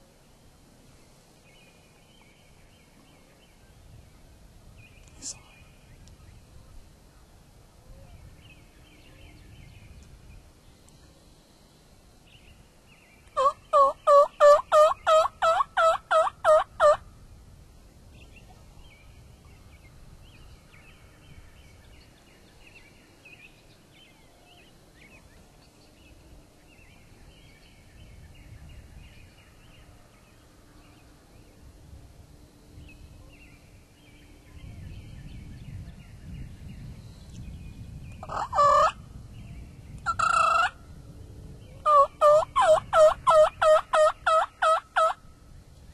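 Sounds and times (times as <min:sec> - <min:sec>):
faint songbird chirps: 0:00.0 - 0:15.4, 0:17.8 - 0:40.1
turkey yelping: 0:13.4 - 0:17.0, 0:41.8 - 0:45.2.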